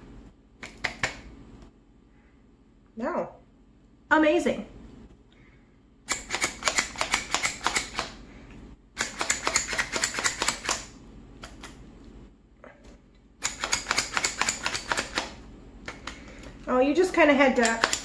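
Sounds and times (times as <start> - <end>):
vegetable chopper rapid clicking: 6.1 - 8.2, 9.0 - 10.9, 13.4 - 15.4, 17.5 - 18.0.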